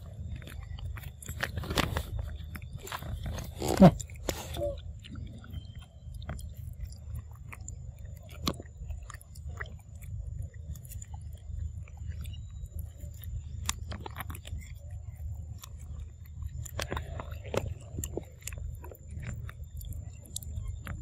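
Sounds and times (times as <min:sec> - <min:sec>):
monkeys feeding mouth sounds: 0:00.0 - 0:21.0
sucking through a straw: 0:02.8 - 0:05.4.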